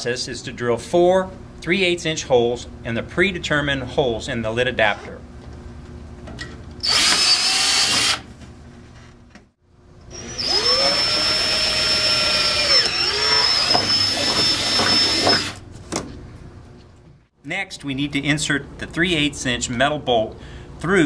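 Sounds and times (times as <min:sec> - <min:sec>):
cordless drill whining: 0:06.8 - 0:08.2, 0:10.1 - 0:15.6.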